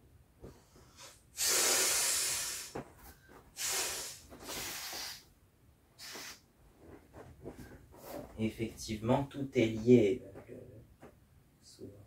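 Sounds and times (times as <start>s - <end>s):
air hissing from inflatable: 0.9s - 2.9s, 3.6s - 5.3s, 6.0s - 6.4s.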